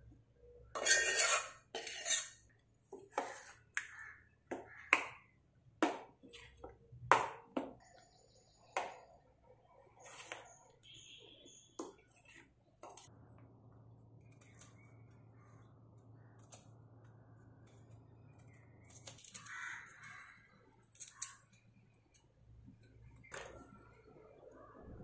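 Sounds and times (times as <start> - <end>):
vegetable peeler scraping: 0.8 - 2.4.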